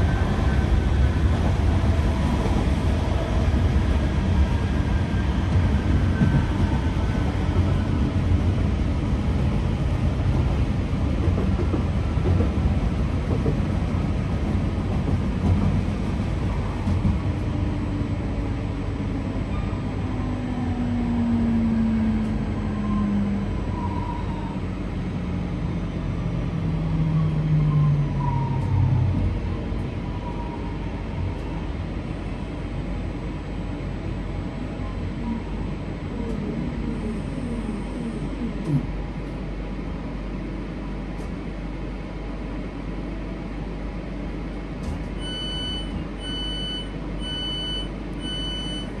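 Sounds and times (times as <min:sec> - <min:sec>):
door warning beeps: 0:45.2 - 0:48.9.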